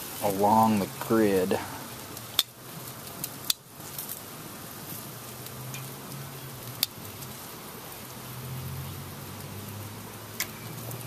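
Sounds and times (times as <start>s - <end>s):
food sizzling on grill: 0.0s - 11.0s
metal tongs clicking on grate: 5.7s - 5.9s.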